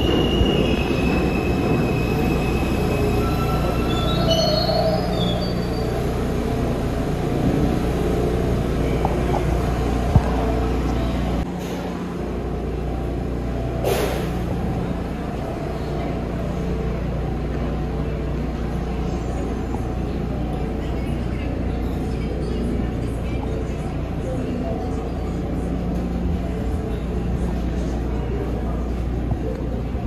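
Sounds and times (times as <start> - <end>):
subway train rumbling: 0.0 - 30.0.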